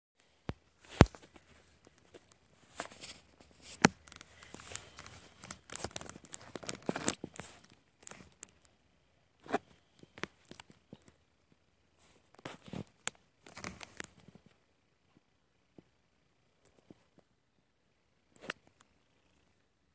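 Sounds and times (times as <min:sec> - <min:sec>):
rustling and crinkling handling noise: 0:00.2 - 0:08.7, 0:12.0 - 0:15.2.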